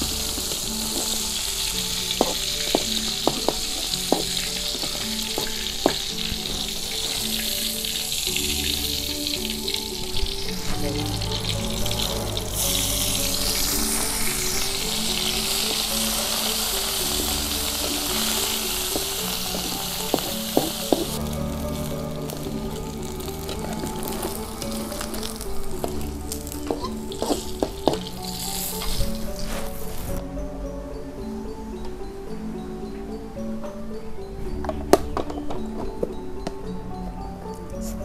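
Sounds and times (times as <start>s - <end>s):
oil sizzling in a wok: 0.0s - 30.2s.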